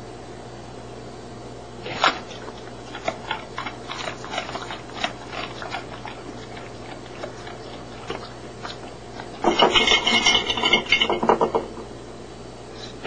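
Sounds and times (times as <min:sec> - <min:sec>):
dog snapping and clicking: 0:01.9 - 0:09.3.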